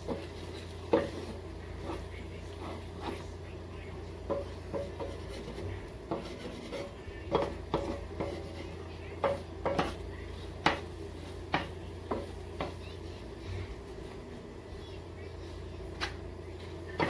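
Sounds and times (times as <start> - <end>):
spatula scraping frying pan: 0.0 - 3.4, 4.2 - 12.9.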